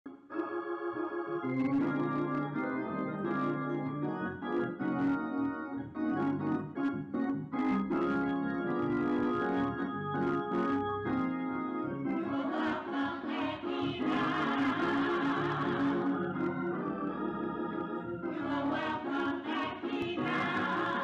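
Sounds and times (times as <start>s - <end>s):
organ chords: 0.1s - 21.0s.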